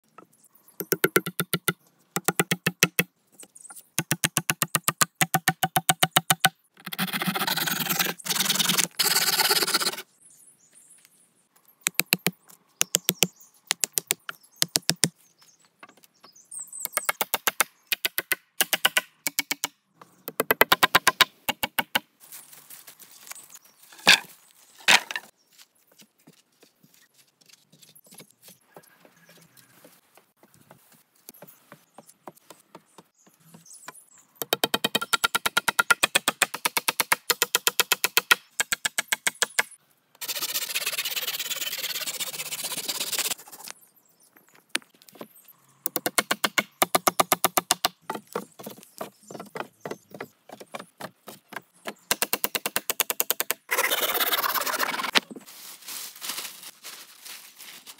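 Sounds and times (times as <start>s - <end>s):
hatchet chopping logs: 0.8s - 3.1s, 4.0s - 6.5s, 11.8s - 15.1s, 16.9s - 22.0s, 33.9s - 39.7s, 45.8s - 53.6s.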